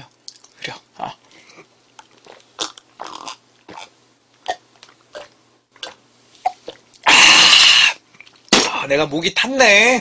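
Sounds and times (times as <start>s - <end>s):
person gulping juice: 1.6s - 8.5s.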